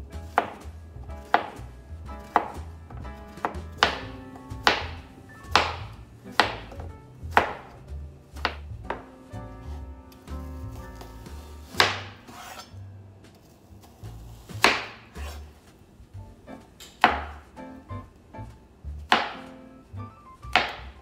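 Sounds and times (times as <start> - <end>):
soft background music: 0.0 - 21.0
knife chopping on cutting board: 0.2 - 9.2, 10.3 - 12.7, 14.4 - 15.6, 16.9 - 17.4, 19.1 - 19.5, 20.4 - 21.0.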